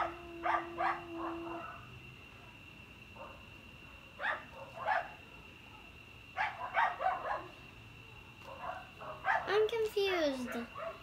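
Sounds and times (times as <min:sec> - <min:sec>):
dog barking: 0:00.0 - 0:01.9, 0:03.2 - 0:05.2, 0:06.4 - 0:07.6, 0:08.4 - 0:09.5, 0:10.4 - 0:11.0.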